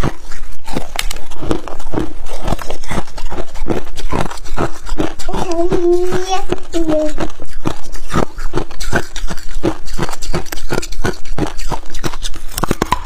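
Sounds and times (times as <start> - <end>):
ice crunching between teeth: 0.0 - 13.0.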